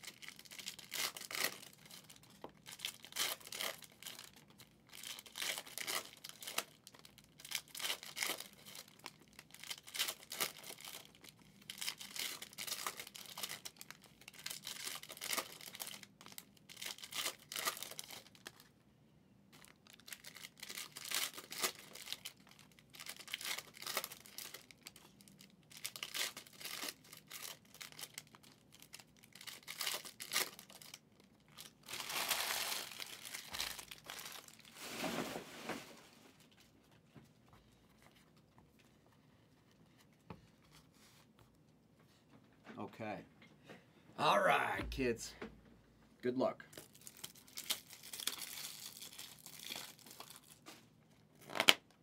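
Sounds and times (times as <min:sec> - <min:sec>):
wrappers tearing and crinkling: 0:00.0 - 0:18.6, 0:19.6 - 0:35.2, 0:46.7 - 0:51.9.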